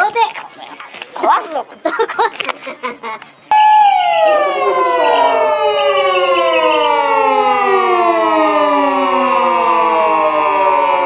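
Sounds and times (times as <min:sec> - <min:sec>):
siren wail falling in pitch: 0:03.5 - 0:11.0.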